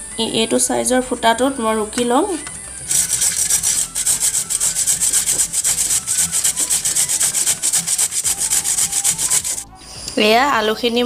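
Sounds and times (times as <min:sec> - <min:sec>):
potato scraping on a grater: 0:02.9 - 0:09.6.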